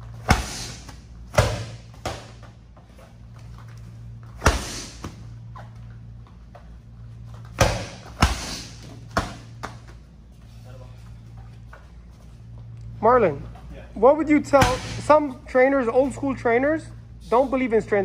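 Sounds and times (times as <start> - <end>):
medicine ball slams: 0.2 - 2.4, 4.4 - 5.2, 7.6 - 9.8, 14.5 - 15.1.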